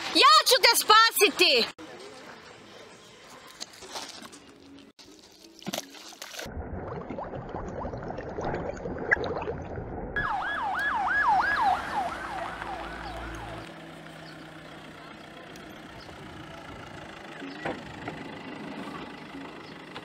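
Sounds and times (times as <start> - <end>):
water splashing: 5.0 - 10.2
siren sweeping up and down: 10.2 - 13.7.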